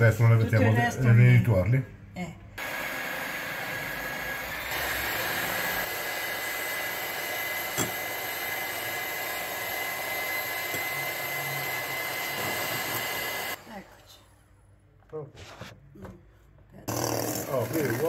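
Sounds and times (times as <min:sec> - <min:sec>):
electric hand mixer whipping: 0:02.6 - 0:13.9, 0:16.9 - 0:18.0.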